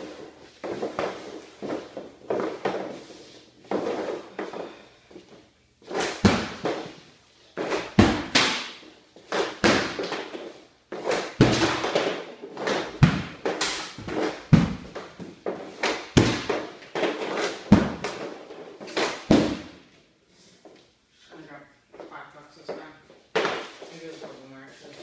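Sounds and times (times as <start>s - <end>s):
pucks scraping on floor: 0.0s - 25.0s
hockey puck shots cracking: 5.9s - 7.0s, 7.6s - 19.8s, 23.3s - 23.8s.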